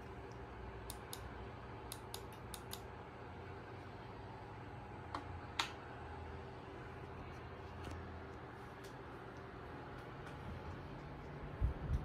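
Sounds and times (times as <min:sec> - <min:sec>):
ceiling fan running: 0:00.0 - 0:12.0
sharp clicks: 0:01.9 - 0:02.9.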